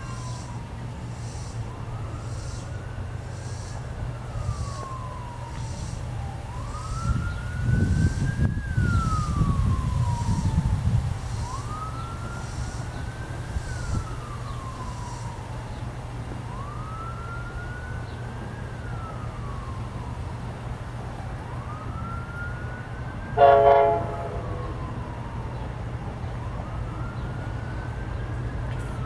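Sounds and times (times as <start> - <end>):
emergency siren wailing: 0.0 - 29.0.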